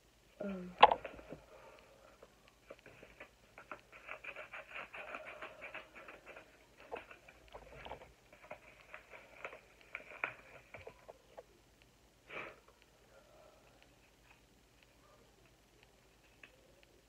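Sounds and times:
person sniffing: 0:12.3 - 0:12.7.

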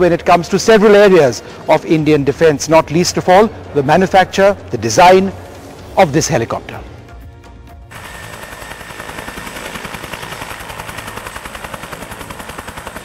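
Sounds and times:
helicopter rotor beating: 0:07.9 - 0:13.0.

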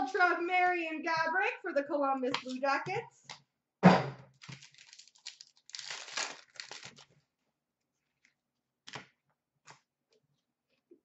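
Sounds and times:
foil wrapper tearing and crinkling: 0:04.4 - 0:07.2.

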